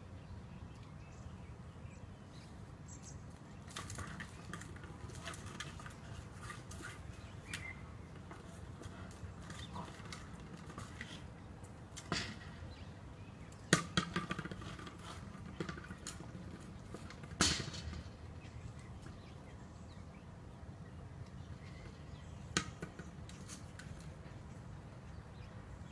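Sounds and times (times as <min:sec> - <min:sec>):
plastic ball bouncing on paving: 0:13.6 - 0:18.2.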